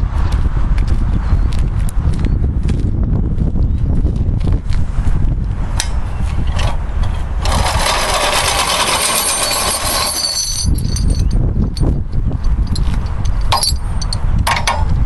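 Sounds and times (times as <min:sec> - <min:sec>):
low rumble: 0:00.0 - 0:15.0
strap reel whirring: 0:06.5 - 0:11.4.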